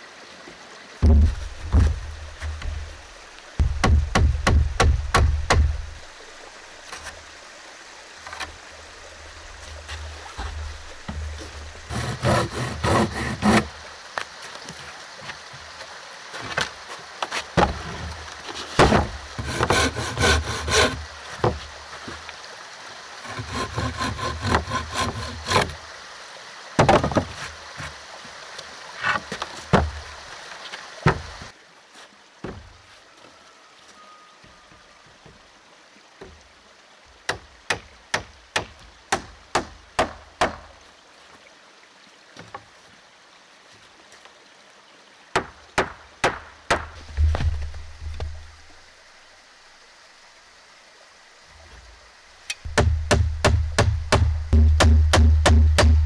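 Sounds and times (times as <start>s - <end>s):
wood knocks: 1.0s - 2.9s, 3.6s - 5.8s, 18.8s - 21.6s, 26.8s - 27.4s, 29.1s - 30.0s, 31.0s - 31.3s, 32.4s - 32.7s, 52.6s - 56.0s
handsaw cutting wood: 11.9s - 13.7s, 18.8s - 21.0s, 23.2s - 25.8s.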